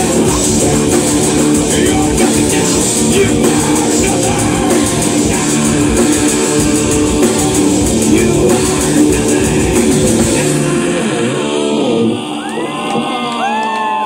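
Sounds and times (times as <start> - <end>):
heavy metal band playing: 0.0 - 14.0
person singing: 0.0 - 14.0.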